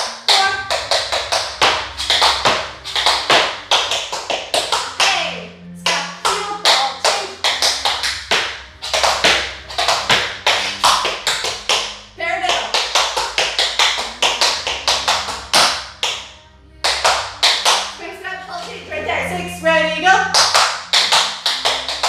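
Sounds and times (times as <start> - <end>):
tap shoes on hard floor: 0.0 - 5.2, 5.9 - 16.2.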